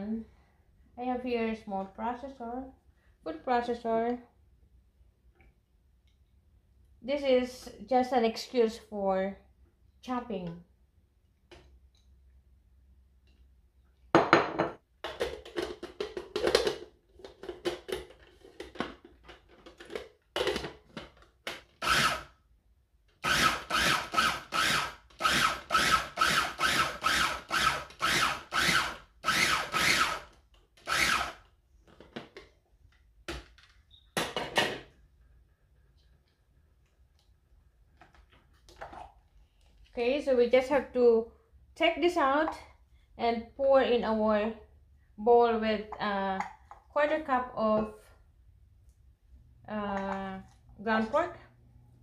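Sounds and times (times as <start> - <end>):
food processor pulsing: 21.8 - 22.3, 23.2 - 31.4.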